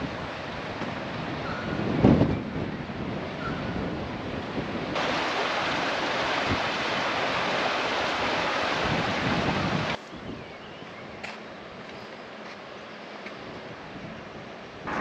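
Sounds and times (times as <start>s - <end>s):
sea surf washing on shore: 0.0s - 10.0s
wind rumbling on microphone: 0.0s - 11.9s, 13.3s - 15.0s.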